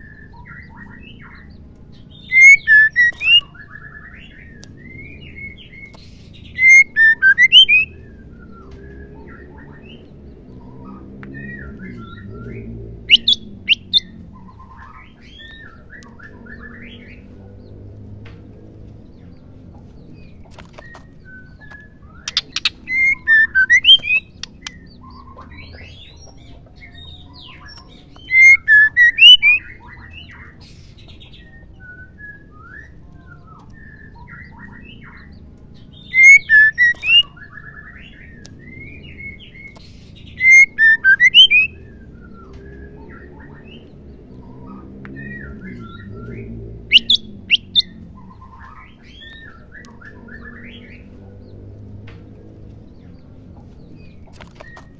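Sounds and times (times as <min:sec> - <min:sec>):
bird calling in sharp notes: 0:02.1 - 0:09.9, 0:11.4 - 0:17.3, 0:21.4 - 0:26.0, 0:27.0 - 0:30.2, 0:36.0 - 0:43.9, 0:45.2 - 0:51.0.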